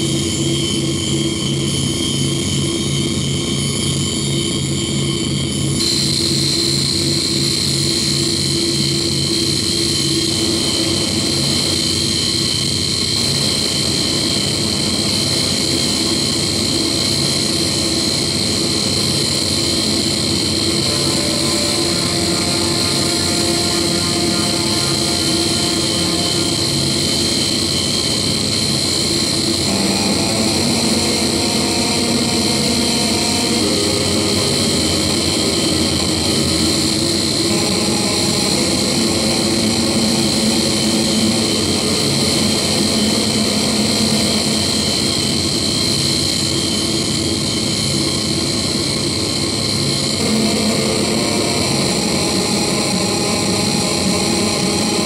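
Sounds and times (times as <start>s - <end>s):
wall of electronic noise: 5.2s - 46.4s, 48.7s - 55.0s
sustained tones: 13.9s - 45.4s, 50.2s - 55.0s.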